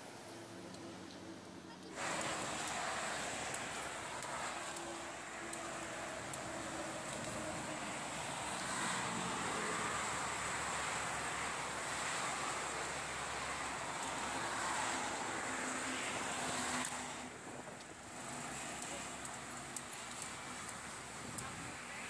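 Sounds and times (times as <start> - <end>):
outdoor background hiss: 0.0 - 22.0.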